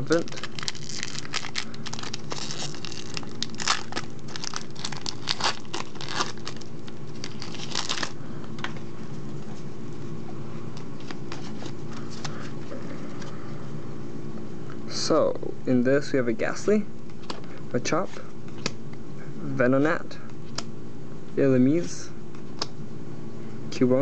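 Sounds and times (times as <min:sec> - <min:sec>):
foil pack crinkling and tearing: 0:00.0 - 0:08.2
steady low hum: 0:00.0 - 0:24.0.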